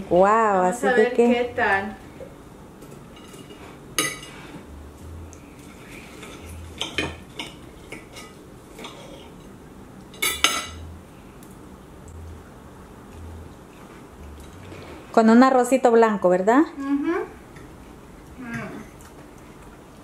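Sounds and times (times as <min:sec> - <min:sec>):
knife and fork scraping a plate: 0:03.1 - 0:04.6, 0:05.6 - 0:09.5.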